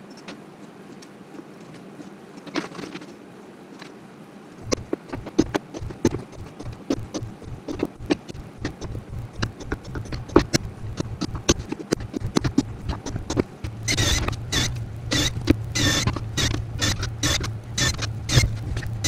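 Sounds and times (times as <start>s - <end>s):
low steady hum: 4.4s - 19.0s.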